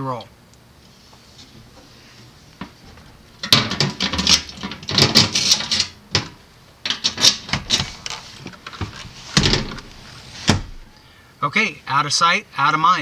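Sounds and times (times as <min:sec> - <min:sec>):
seat hinges clattering and clicking: 0:03.4 - 0:10.8.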